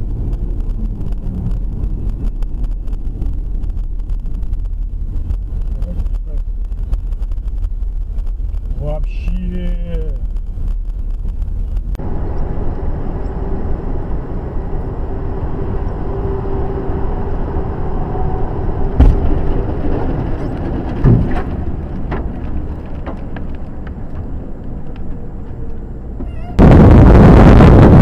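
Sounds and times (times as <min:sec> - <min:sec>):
truck engine and road noise: 0:00.0 - 0:28.0
thump: 0:19.0 - 0:19.5, 0:21.0 - 0:21.5
tyre bursting bang: 0:19.0 - 0:19.7.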